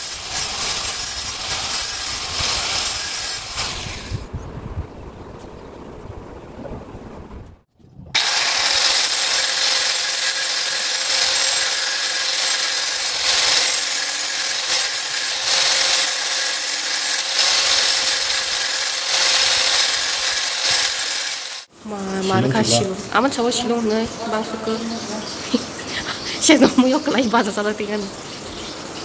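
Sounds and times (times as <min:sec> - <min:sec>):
angle grinder grinding steel: 0:00.0 - 0:04.0, 0:08.2 - 0:21.7.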